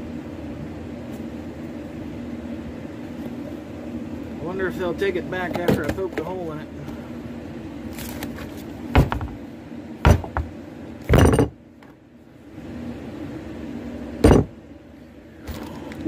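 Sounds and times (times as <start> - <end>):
steady low hum: 0.0 - 16.0
sharp knocks and bumps: 5.4 - 6.3, 8.3 - 9.4, 10.0 - 11.6, 14.2 - 14.5.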